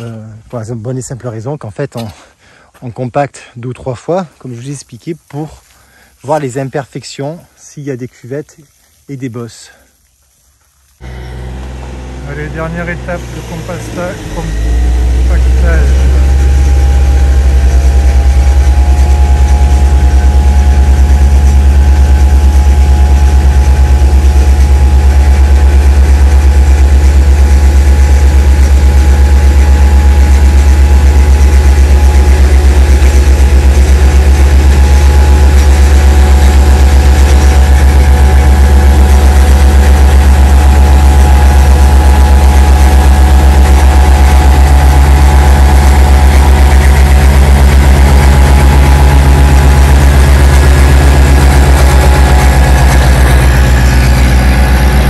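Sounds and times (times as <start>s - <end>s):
roller engine pulsing: 11.0s - 55.0s.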